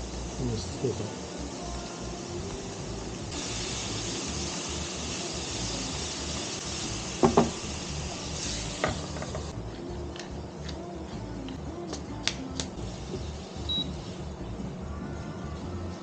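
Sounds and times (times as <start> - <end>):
food sizzling in a hot pan: 0.0 - 9.6.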